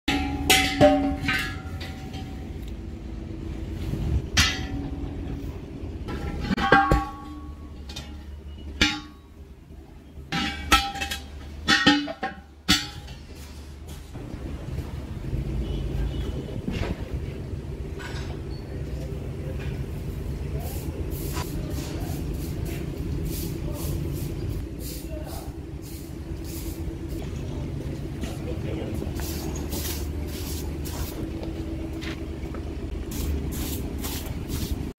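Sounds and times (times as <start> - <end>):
sharp metallic clanks: 0.1 - 2.7, 4.2 - 9.5, 10.2 - 13.6
vehicle engine running: 0.1 - 11.7, 12.4 - 34.9.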